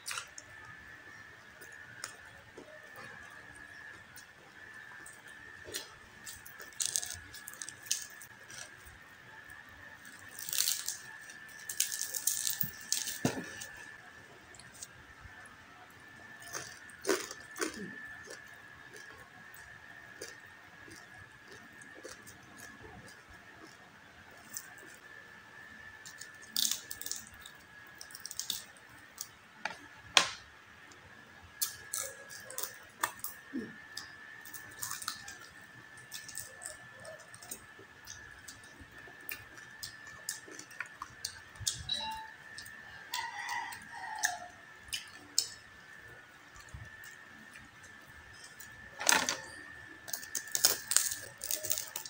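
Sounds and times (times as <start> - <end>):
crunchy chewing: 0.0 - 25.3, 26.0 - 29.9, 31.5 - 41.9, 42.6 - 52.0
faint steady high tone: 41.7 - 43.0.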